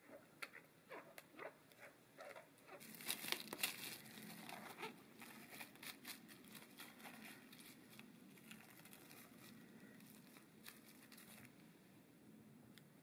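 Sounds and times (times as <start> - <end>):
cling film crinkling: 2.7 - 11.6.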